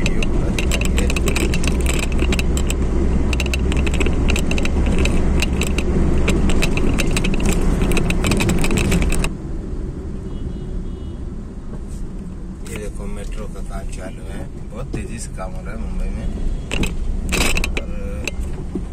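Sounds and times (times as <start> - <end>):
metallic clicks and jingles: 0.0 - 9.3, 16.7 - 18.5
engine and road rumble: 0.0 - 18.9.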